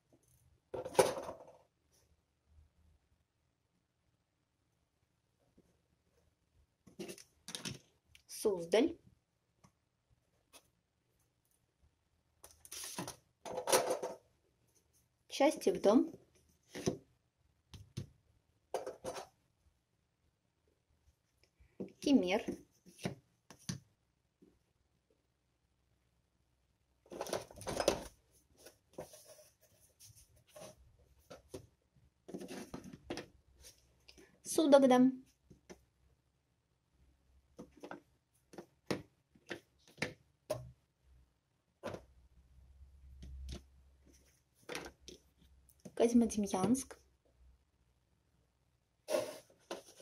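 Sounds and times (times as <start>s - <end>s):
fridge magnets rustling and clattering: 12.6s - 14.3s, 18.8s - 19.4s, 27.1s - 29.6s, 32.3s - 33.7s.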